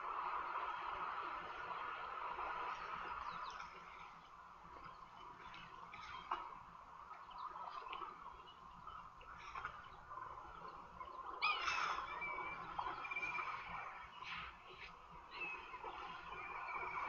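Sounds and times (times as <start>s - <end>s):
birds chirping: 0.2s - 17.0s
whistled bird notes: 11.3s - 17.0s.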